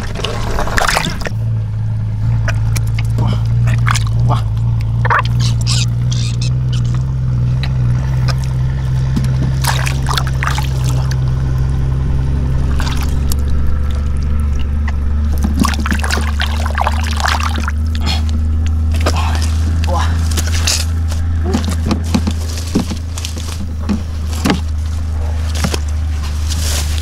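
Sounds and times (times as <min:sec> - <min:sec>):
water splashing and sloshing: 0:00.0 - 0:01.6, 0:02.3 - 0:27.0
steady low hum: 0:00.0 - 0:27.0
hands digging through wet mud: 0:09.2 - 0:11.2, 0:15.3 - 0:27.0.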